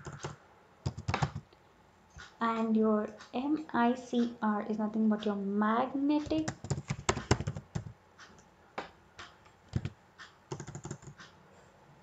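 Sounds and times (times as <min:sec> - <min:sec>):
typing on computer keyboard: 0:00.0 - 0:01.4, 0:06.2 - 0:07.9, 0:09.7 - 0:11.3.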